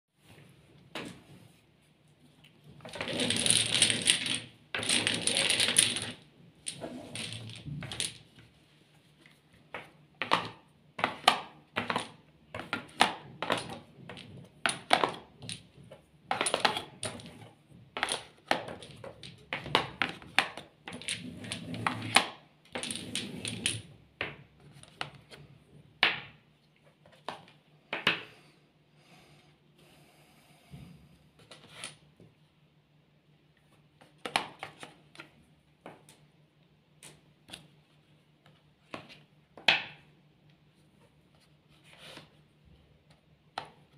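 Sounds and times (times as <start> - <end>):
domino tiles clattering: 2.9 - 8.3, 10.2 - 15.7, 16.3 - 23.9.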